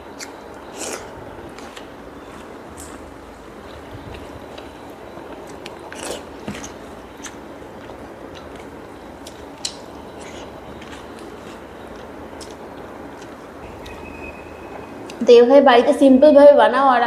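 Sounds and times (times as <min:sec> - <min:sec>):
chewing mouth sounds: 0:05.3 - 0:13.4.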